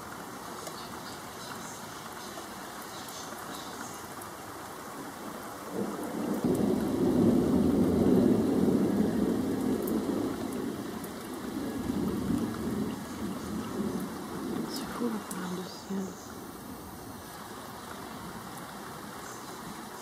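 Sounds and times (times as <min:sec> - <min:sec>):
rain hissing: 0:00.0 - 0:20.0
thunder rumbling: 0:05.3 - 0:17.1.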